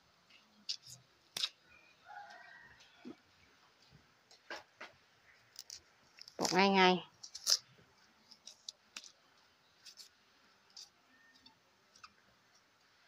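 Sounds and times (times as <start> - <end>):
knife clicks and scrapes: 0.7 - 1.6.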